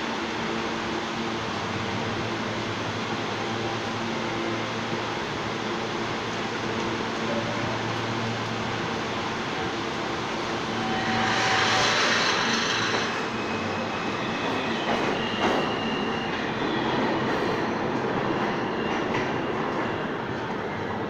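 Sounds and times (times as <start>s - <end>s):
subway train running: 0.0s - 21.0s.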